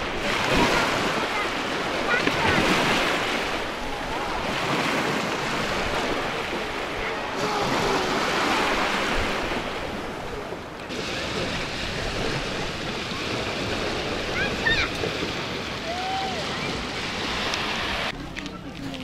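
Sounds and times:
sea waves breaking: 0.0s - 19.0s
wind buffeting microphone: 0.0s - 19.0s.

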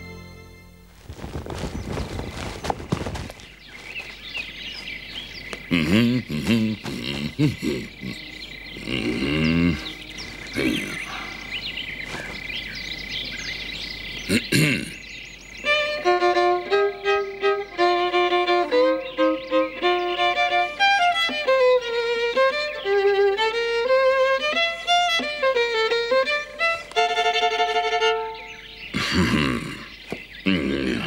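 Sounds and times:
violin playing slow melody: 0.0s - 1.0s, 15.6s - 28.8s.

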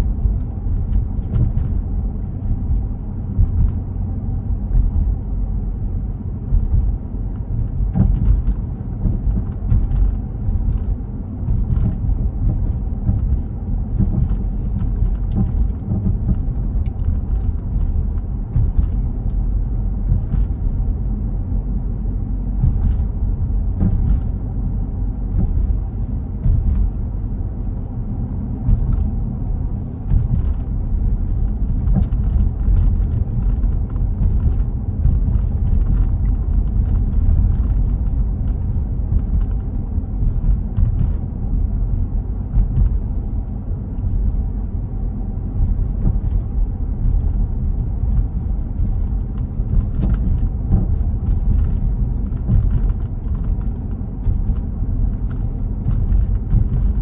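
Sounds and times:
road and engine rumble in car: 0.0s - 57.0s.

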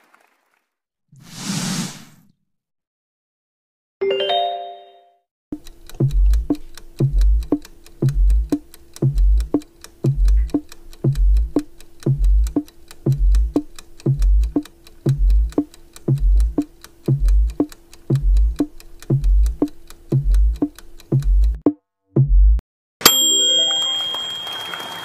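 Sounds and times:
audience applause: 0.0s - 0.7s, 23.6s - 25.0s
bright chime: 4.0s - 5.2s, 23.0s - 25.0s
countdown timer music: 4.0s - 5.2s, 5.9s - 22.6s
wood-block ticks: 5.5s - 21.8s
low bass pulse: 6.0s - 9.5s, 10.1s - 19.6s.

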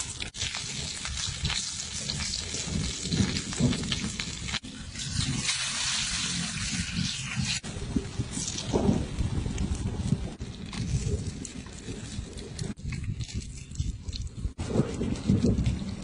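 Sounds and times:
food sizzling on hot stone: 0.0s - 7.6s.

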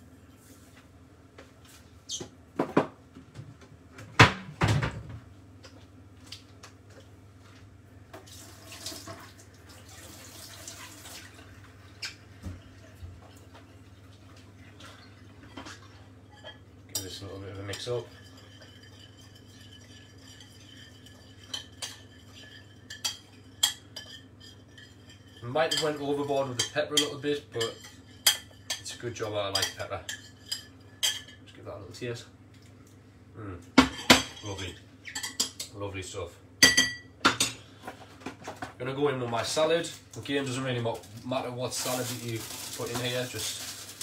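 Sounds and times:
running water: 8.2s - 16.1s
whisk clinking against bowl: 16.3s - 31.4s.

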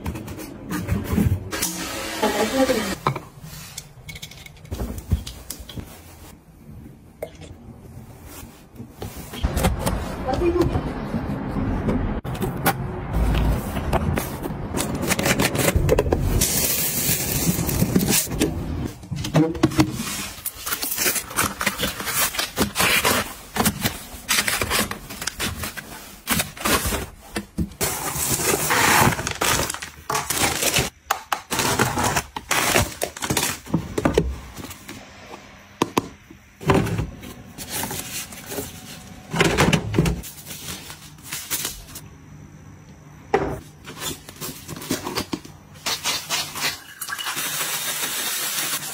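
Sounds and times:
packaging rustling and crinkling: 14.2s - 34.9s, 40.2s - 42.0s.

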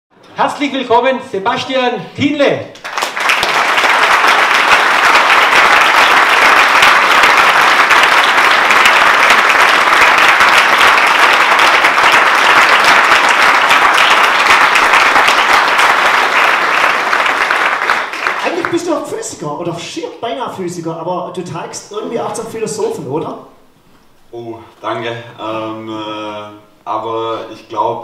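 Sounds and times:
audience clapping: 2.7s - 19.4s.

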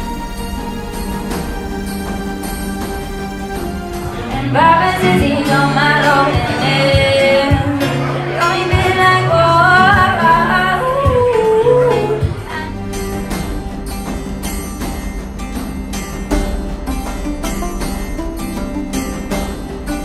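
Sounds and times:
acoustic guitar: 0.0s - 20.0s
woman singing: 4.2s - 12.9s.

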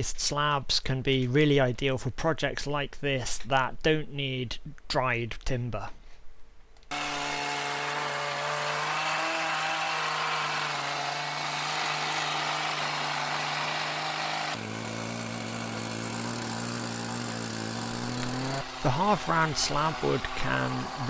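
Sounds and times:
chainsaw cutting timber: 6.9s - 21.0s.

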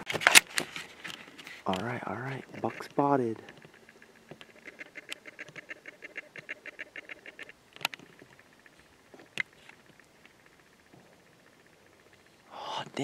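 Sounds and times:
rapid short animal calls: 3.7s - 7.5s.

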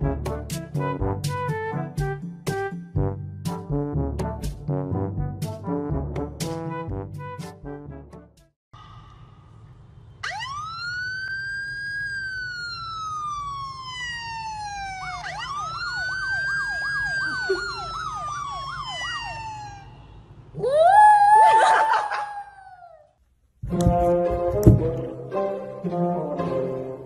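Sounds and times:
siren sound from a phone: 10.2s - 20.2s.

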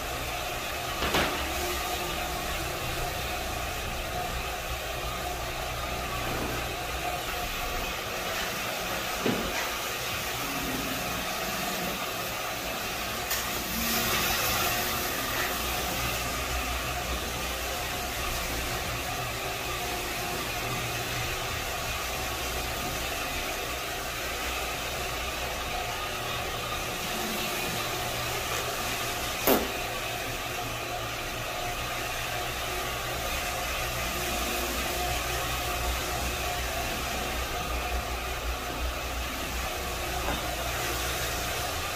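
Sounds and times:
floor machine motor hum: 0.0s - 41.9s
sharp knock: 29.4s - 29.7s.

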